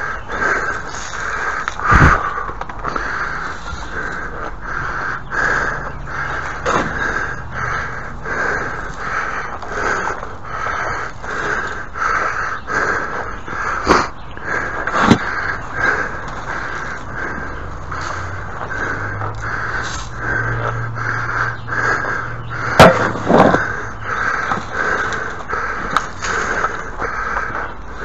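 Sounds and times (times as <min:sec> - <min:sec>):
sharp knocks: 0:22.8 - 0:23.6.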